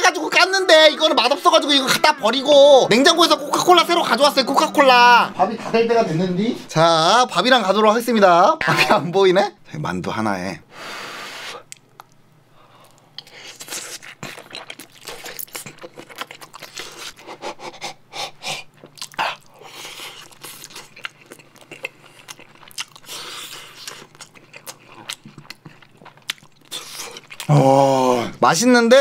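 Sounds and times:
person chewing food: 11.7s - 27.6s.

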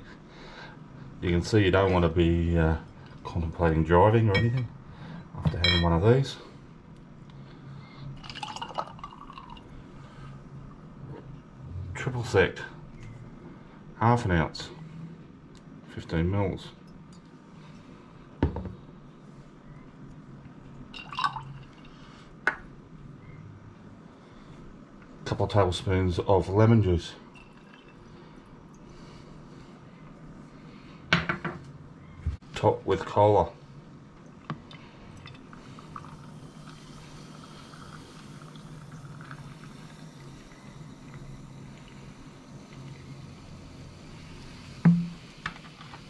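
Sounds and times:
liquor pouring onto ice: 8.2s - 9.7s, 20.9s - 22.0s
soda pouring over ice: 8.2s - 9.7s, 20.9s - 22.0s, 27.3s - 28.1s, 35.1s - 42.6s
glass set down on counter: 18.4s - 18.8s, 44.9s - 45.2s.

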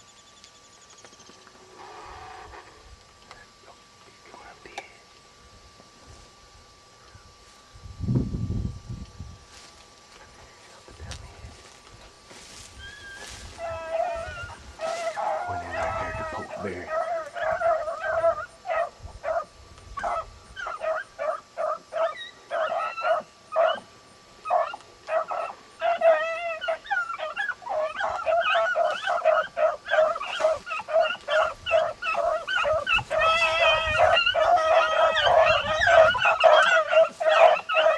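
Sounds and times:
dogs howling: 12.8s - 37.9s
dogs baying and barking: 13.1s - 37.9s.

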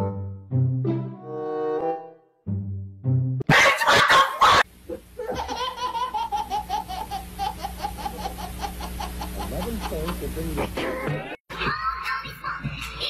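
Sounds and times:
person laughing: 3.5s - 11.8s.

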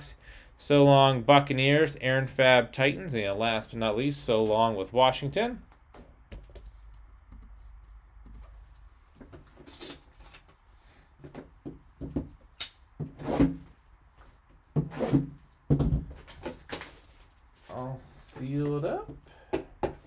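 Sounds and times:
handling cards and packaging: 5.7s - 12.2s, 13.2s - 19.0s.

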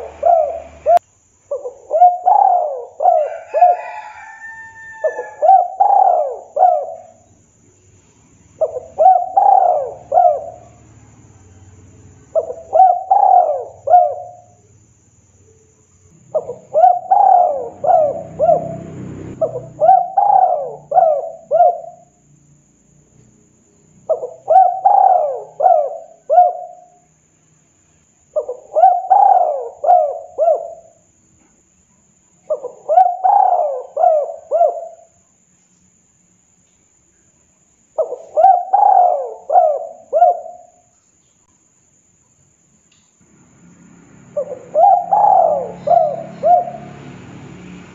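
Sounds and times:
dove cooing: 0.0s - 7.3s, 8.6s - 11.0s, 12.3s - 14.6s, 16.3s - 22.2s, 24.0s - 27.0s, 28.4s - 31.0s, 32.5s - 35.2s, 38.0s - 40.9s, 44.3s - 47.2s.

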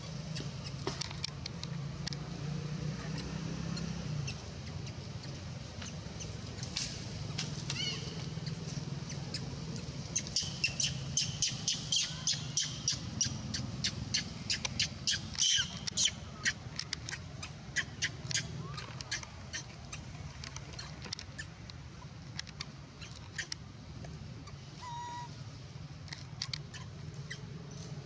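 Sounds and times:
young monkey squeaking: 7.4s - 20.1s, 23.0s - 23.6s, 24.8s - 25.4s, 26.4s - 27.5s.

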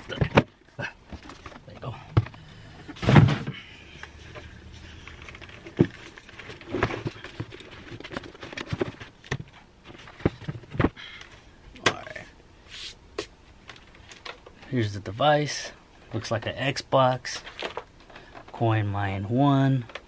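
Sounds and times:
cardboard box thump: 3.0s - 3.6s.

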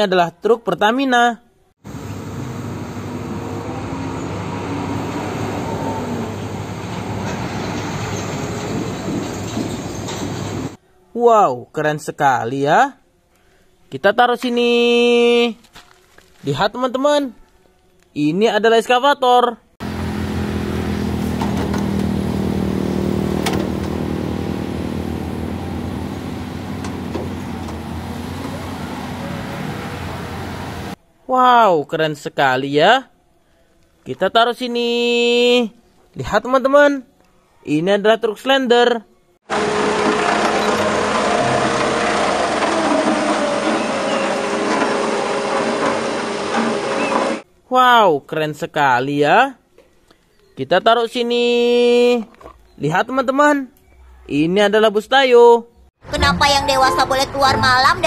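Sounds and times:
road noise: 1.8s - 10.8s, 19.8s - 31.0s, 39.5s - 47.4s, 55.9s - 58.0s
truck diesel engine running: 1.9s - 10.8s, 19.8s - 31.0s, 39.5s - 47.4s, 56.0s - 58.0s.

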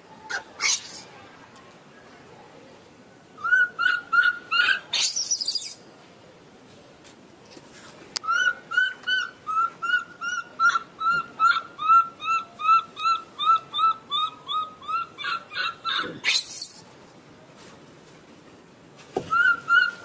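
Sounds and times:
baby monkey high-pitched calls: 0.2s - 1.1s, 3.4s - 5.8s, 8.2s - 16.8s, 19.3s - 20.0s
baby monkey harsh scream: 0.3s - 1.1s, 3.4s - 5.8s, 8.3s - 16.8s.

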